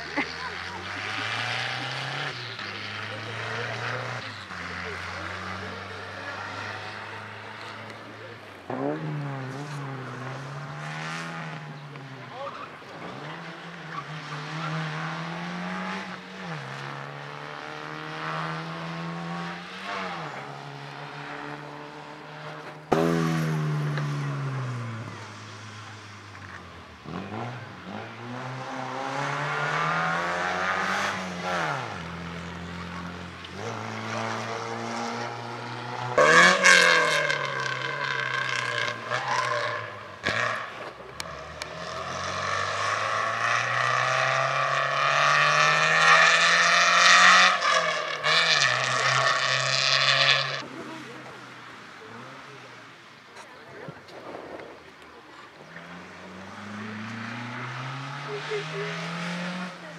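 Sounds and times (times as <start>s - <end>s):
rally car engine revving: 0.0s - 59.9s.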